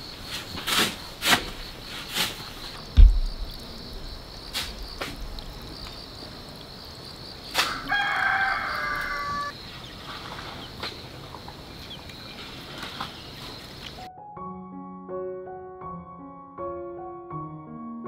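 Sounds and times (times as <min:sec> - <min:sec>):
high insect drone: 0:00.0 - 0:14.0
sharp knock: 0:03.0 - 0:05.4
rooster crowing: 0:07.6 - 0:09.6.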